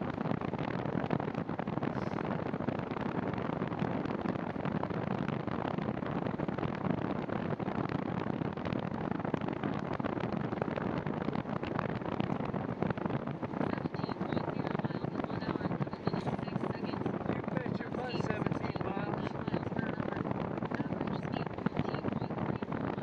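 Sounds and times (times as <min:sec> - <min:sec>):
bicycle tyres rolling on pavement: 0:00.0 - 0:13.7
wind rushing on microphone: 0:00.0 - 0:23.0.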